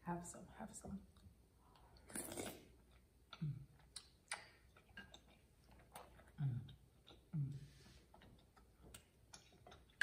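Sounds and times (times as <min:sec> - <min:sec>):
close-up chewing: 0:01.1 - 0:10.0
wet mouth clicks: 0:01.8 - 0:07.5
slurping noodles: 0:02.0 - 0:02.8.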